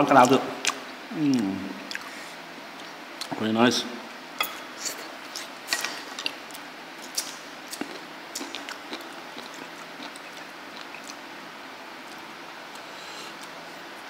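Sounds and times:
low room noise: 0.0s - 14.0s
chewing: 4.8s - 11.2s.

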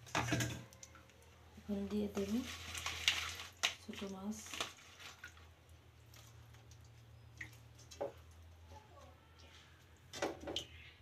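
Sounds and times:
soft wet taps and squishes: 3.6s - 10.7s.

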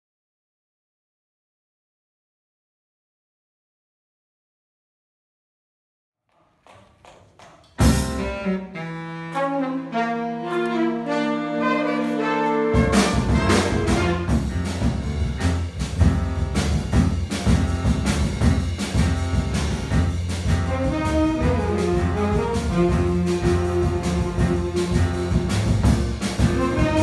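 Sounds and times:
bass and drums: 7.8s - 8.7s, 12.7s - 27.0s
jazz big band playing: 7.8s - 27.0s
saxophone and brass chords: 7.8s - 27.0s.

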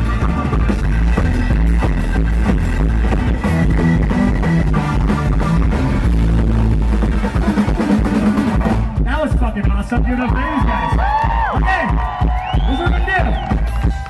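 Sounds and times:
band jamming loudly: 0.0s - 14.0s
busy drumming: 0.0s - 14.0s
heavy bass: 0.0s - 14.0s.

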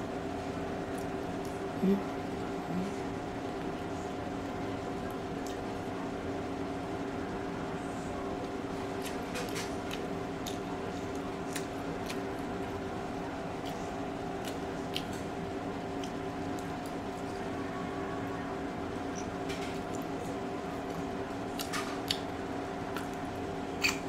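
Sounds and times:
steady electrical hum: 0.0s - 24.0s
chewing: 5.0s - 5.8s, 9.0s - 12.9s, 13.5s - 17.5s, 19.1s - 24.0s
mouth clicks and smacks: 23.8s - 24.0s.

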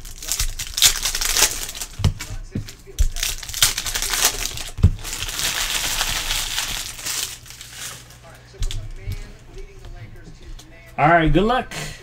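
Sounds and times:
foil wrappers crinkling and tearing: 0.0s - 9.7s
packs thumping on table: 0.1s - 9.3s.

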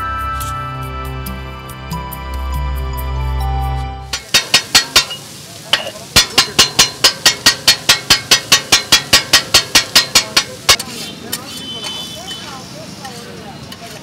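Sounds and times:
background music: 0.0s - 4.2s
faint sizzling: 0.0s - 14.0s
metal spatulas clanking on griddle: 4.1s - 12.1s.

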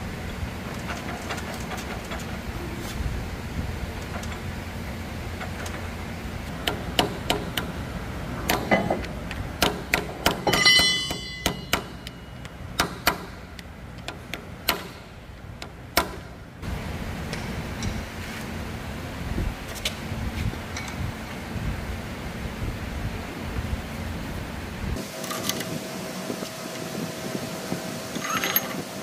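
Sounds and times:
struck steel ringing: 10.2s - 13.4s
metal parts clinking: 10.4s - 12.4s, 28.2s - 28.8s.

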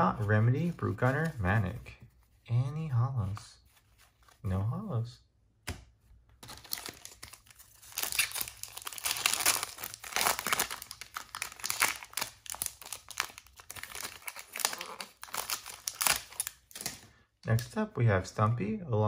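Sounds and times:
foil wrapper tearing and crinkling: 6.4s - 17.0s.

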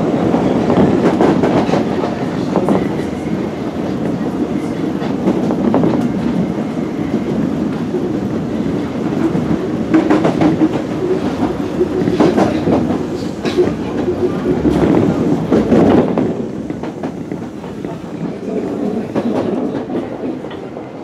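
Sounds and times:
train rumbling: 0.0s - 21.0s
wheels clacking over rail joints: 7.3s - 21.0s.

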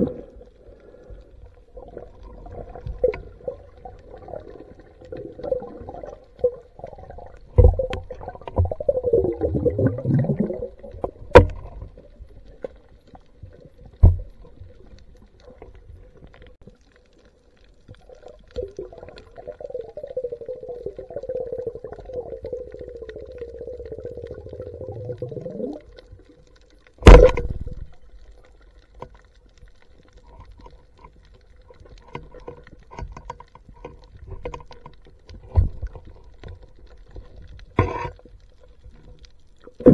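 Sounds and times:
underwater whining tone: 19.6s - 26.2s.

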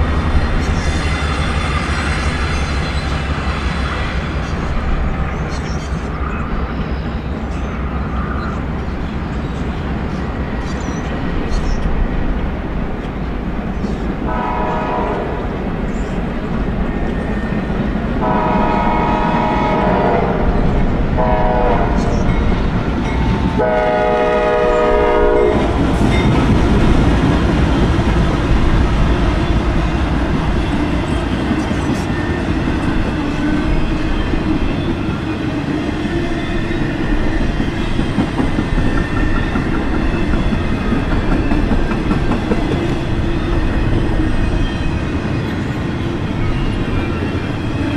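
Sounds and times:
locomotive horn blasts: 14.3s - 15.6s, 18.2s - 20.6s, 21.2s - 22.3s, 23.6s - 25.8s
train wheels clickety-clack: 20.6s - 47.9s.

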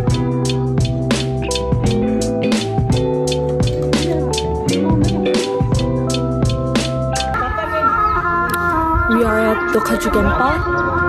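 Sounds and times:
music with steady drum beat: 0.0s - 7.6s.

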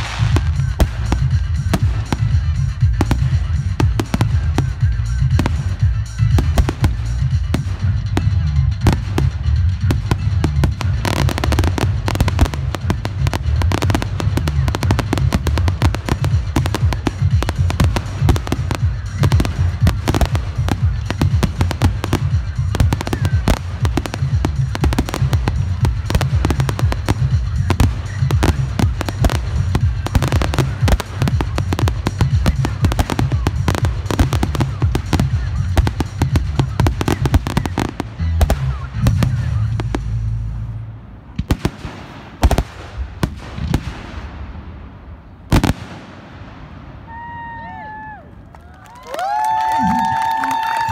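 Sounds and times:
heavy low rumble: 0.0s - 47.6s
fireworks bursting and crackling: 0.0s - 50.9s.

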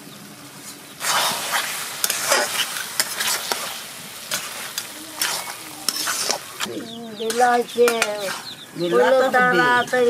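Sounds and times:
spatula scraping a pan: 1.0s - 8.6s
meat sizzling in a pan: 1.0s - 8.7s.

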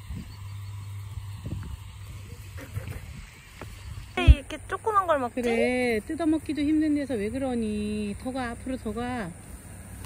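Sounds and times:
wind rumbling on microphone: 0.0s - 5.4s.

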